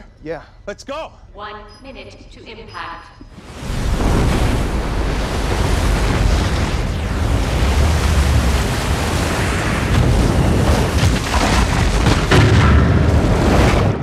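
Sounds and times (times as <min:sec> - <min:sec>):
roar of rushing water: 0:03.4 - 0:12.3
deep rumble: 0:03.4 - 0:14.0
heavy crashes: 0:03.5 - 0:14.0.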